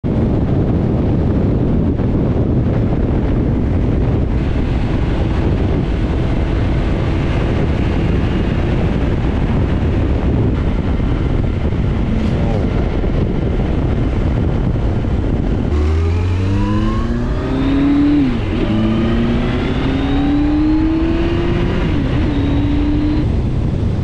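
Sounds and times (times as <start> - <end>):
motorcycle engine and tyre noise: 0.0 - 24.0
wind buffeting microphone: 0.0 - 24.0.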